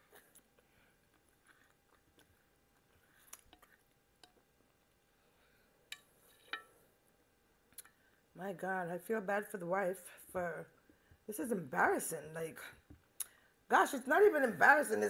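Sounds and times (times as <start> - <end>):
chewing soft food: 0.0 - 5.2
mouth clicks and smacks: 13.2 - 13.4.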